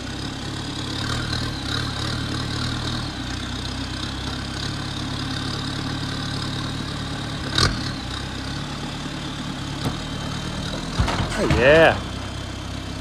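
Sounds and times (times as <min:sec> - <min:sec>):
diesel engine idling: 0:00.0 - 0:13.0
sharp clunk: 0:10.9 - 0:11.9.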